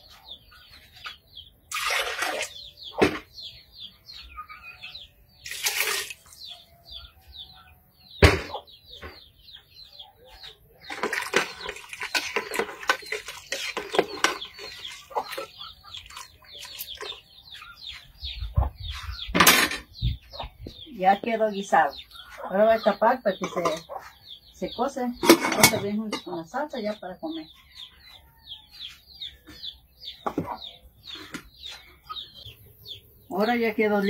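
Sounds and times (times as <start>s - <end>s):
small birds chirping: 0.0s - 34.0s
liquid splashing in a pot: 1.7s - 2.5s.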